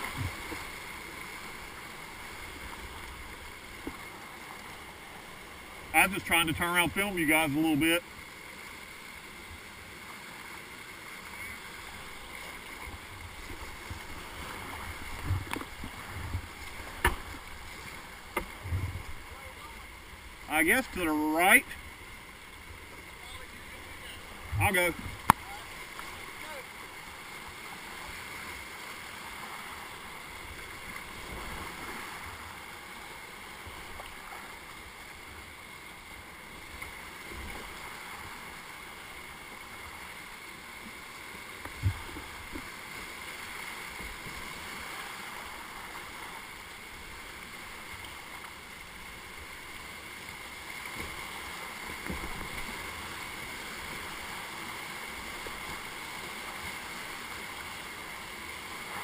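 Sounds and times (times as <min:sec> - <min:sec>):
whitewater rapids rushing: 0:00.0 - 0:59.0
dull knocks on kayak: 0:15.2 - 0:17.4.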